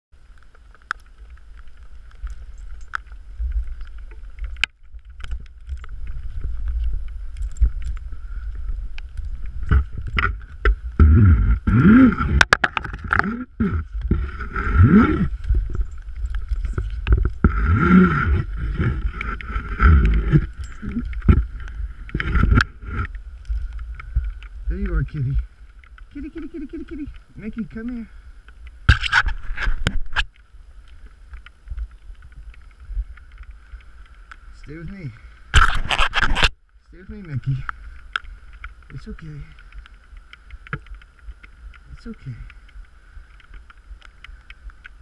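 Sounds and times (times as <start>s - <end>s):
wind rumble: 0.2s - 45.0s
climbing gear clicking and rattling: 0.4s - 45.0s
microphone handling noise: 1.7s - 45.0s.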